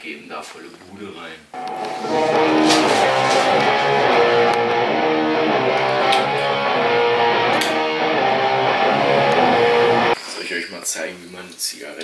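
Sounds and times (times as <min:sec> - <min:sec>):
electric guitar strummed chords: 0:01.6 - 0:10.2.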